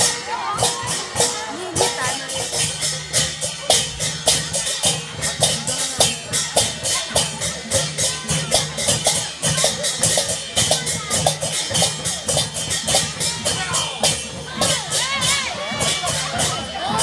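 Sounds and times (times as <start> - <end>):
folk music: 0.0 - 2.4
crowd chatter: 0.0 - 17.0
shaken percussion beating rhythm: 0.0 - 17.0
voices: 0.0 - 17.0.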